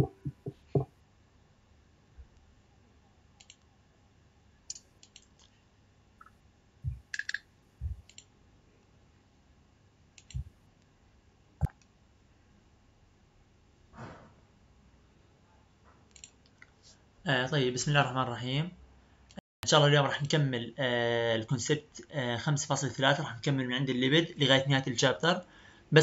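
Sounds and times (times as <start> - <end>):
soft knocks: 0.0 - 0.9
faint room hiss: 0.0 - 26.0
computer mouse clicks: 3.4 - 3.7, 4.7 - 5.5, 6.9 - 8.3, 10.2 - 10.5, 16.1 - 16.6.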